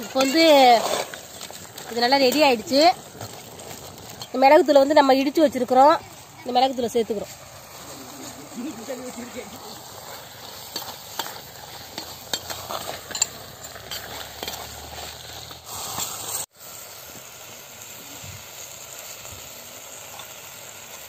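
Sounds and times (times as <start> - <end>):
ladle scraping a clay pot: 0.0 - 5.4, 9.5 - 16.4
food sizzling: 0.0 - 21.0.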